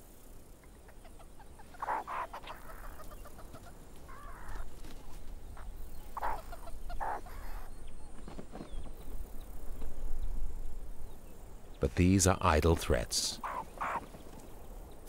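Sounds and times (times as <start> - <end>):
meerkat alarm calls: 1.6 - 3.5, 6.2 - 7.7, 13.4 - 14.1.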